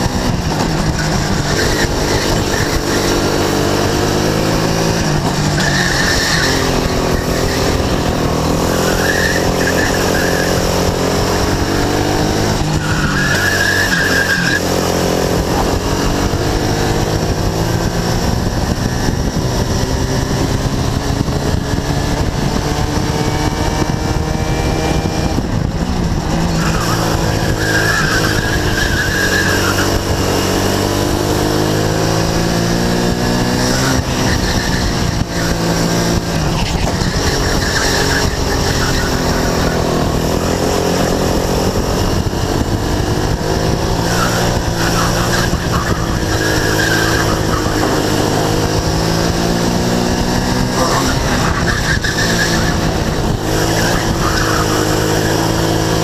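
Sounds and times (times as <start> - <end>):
go-kart engine running hard: 0.0 - 56.0
wind rushing over microphone: 0.0 - 56.0
tyres squealing: 12.7 - 14.7, 26.5 - 30.0, 36.4 - 40.6, 44.0 - 48.8, 50.7 - 55.6.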